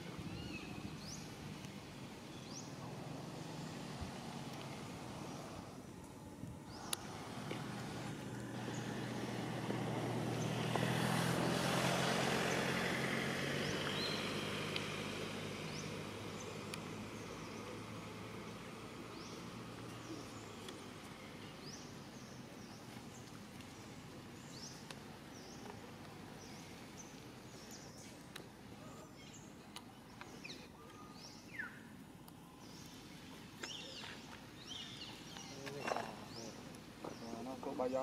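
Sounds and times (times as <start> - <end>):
small birds chirping: 0.0 - 38.0
vehicle engine passing: 6.7 - 21.0.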